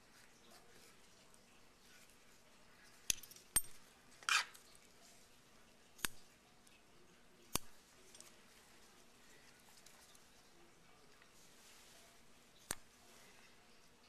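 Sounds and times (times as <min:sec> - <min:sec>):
metal scissors snipping: 0:06.0 - 0:06.2, 0:07.5 - 0:08.4, 0:12.6 - 0:12.9.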